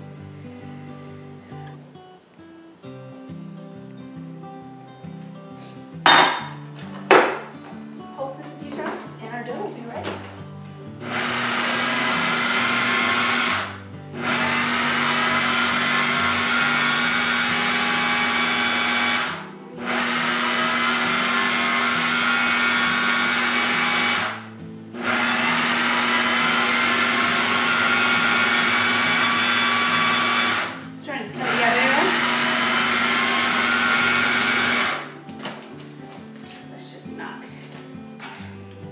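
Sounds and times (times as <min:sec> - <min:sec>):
food processor motor running: 0:11.0 - 0:30.8, 0:31.4 - 0:35.1.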